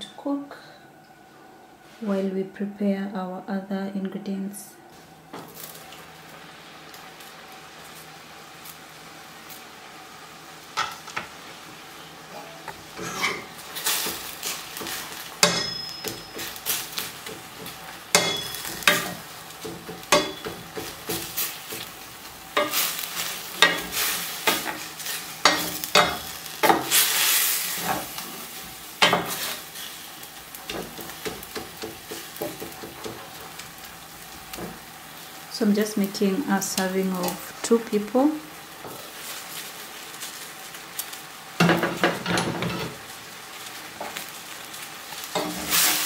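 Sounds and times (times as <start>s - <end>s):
meat sizzling: 5.1s - 46.0s
wooden spatula scraping pan: 12.9s - 15.1s.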